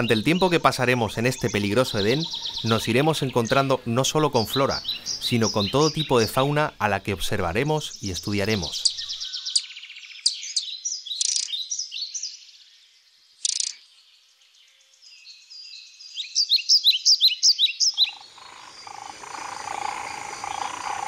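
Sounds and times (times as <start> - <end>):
small birds chirping and trilling: 0.0 - 21.0.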